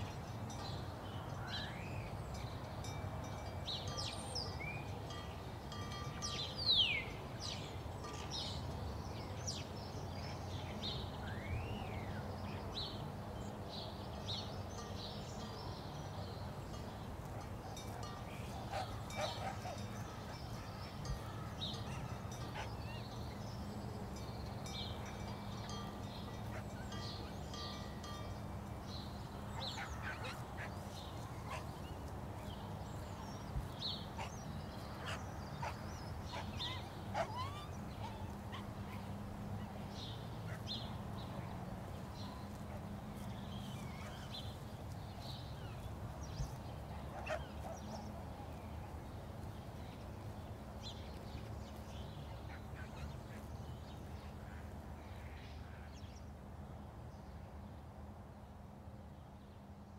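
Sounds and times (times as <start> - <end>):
bird calls: 17.2 - 23.4, 29.0 - 39.2, 45.7 - 48.2.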